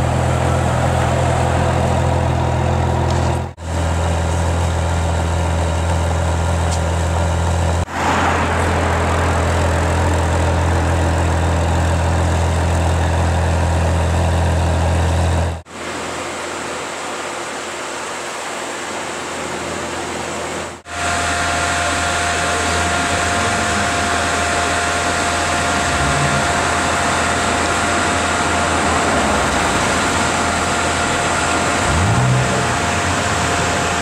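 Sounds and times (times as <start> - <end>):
car engine idling at exhaust: 20.8 - 34.0.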